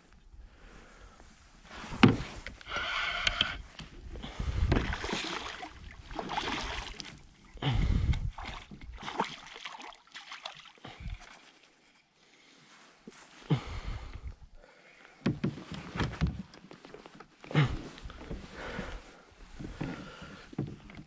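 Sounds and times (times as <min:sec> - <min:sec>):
water sloshing: 0:04.2 - 0:11.8.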